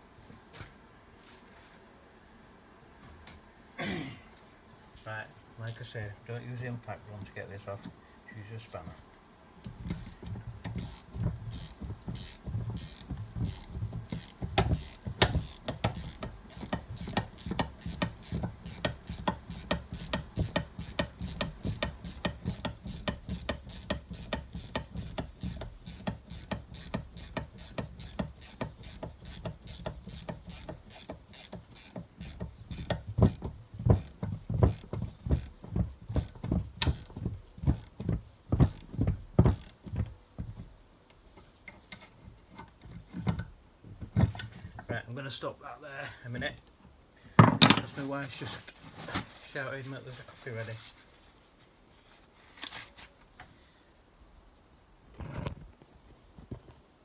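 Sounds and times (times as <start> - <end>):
ratchet spanner clicking: 5.7 - 5.9, 9.7 - 38.0, 38.6 - 39.8.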